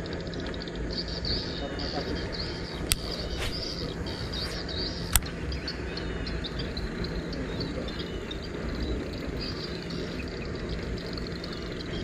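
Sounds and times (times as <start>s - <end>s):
birds chirping: 0.0s - 12.0s
sharp click: 2.8s - 3.8s.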